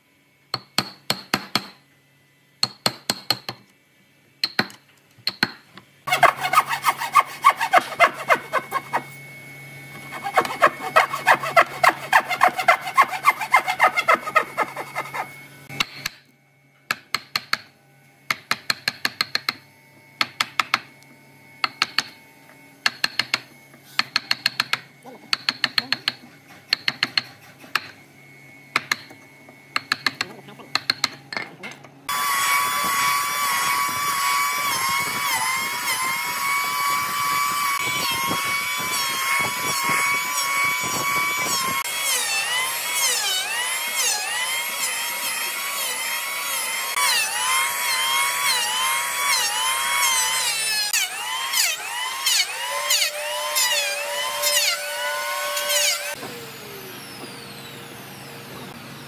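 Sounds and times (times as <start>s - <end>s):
chisel knocking: 4.4s - 5.6s, 18.3s - 19.6s, 22.8s - 23.4s, 24.0s - 27.9s, 29.8s - 31.5s
hand saw cutting wood: 6.1s - 9.2s, 9.9s - 15.4s, 25.4s - 27.9s, 32.1s - 56.2s.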